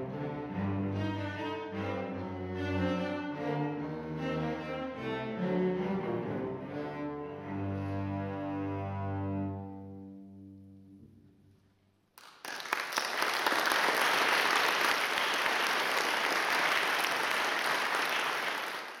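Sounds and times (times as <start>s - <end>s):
cello and double bass chord: 0.0s - 11.1s
audience applause: 12.2s - 19.0s.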